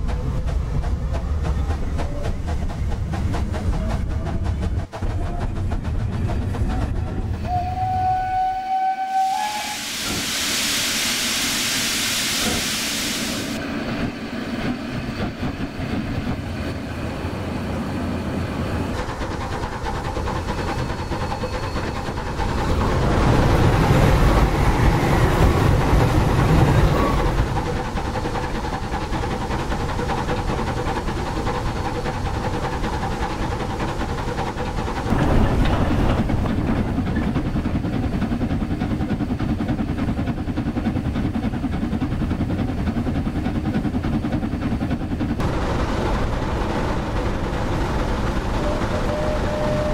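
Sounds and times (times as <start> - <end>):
model train running rumble: 0.0 - 10.2, 12.6 - 49.9
steam hiss: 9.0 - 13.6.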